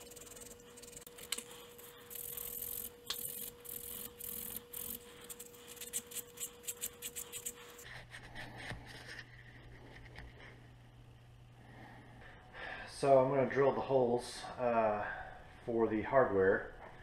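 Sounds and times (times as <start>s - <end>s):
sandpaper rubbing wood: 0.0s - 7.9s.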